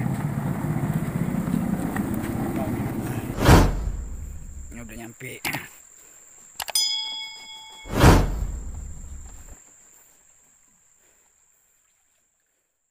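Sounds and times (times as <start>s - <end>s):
rush of noise: 2.6s - 5.0s, 7.8s - 9.6s
short ringing chime: 6.7s - 9.4s.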